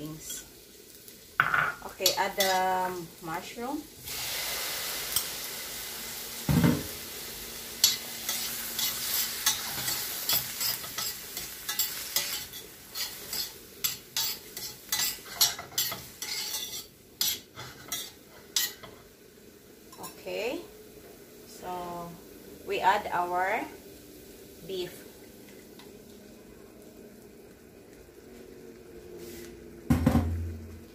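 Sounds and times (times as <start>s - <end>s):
vegetables sizzling in butter: 0.0s - 30.9s
spoon scraping a pan: 1.4s - 2.7s, 7.8s - 19.0s.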